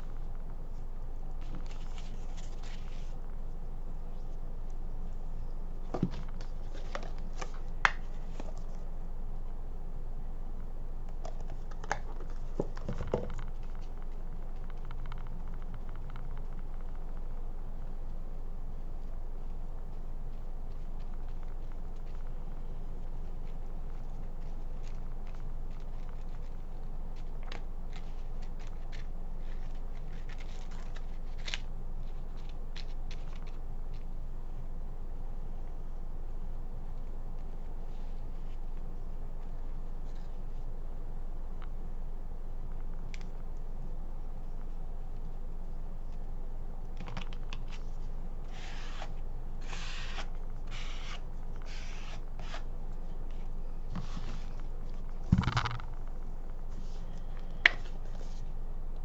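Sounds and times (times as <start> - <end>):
rustling rubbing strokes: 0.0 - 3.2, 53.3 - 55.2
steady low hum: 0.0 - 59.0
paintbrush strokes on paper: 48.0 - 55.1.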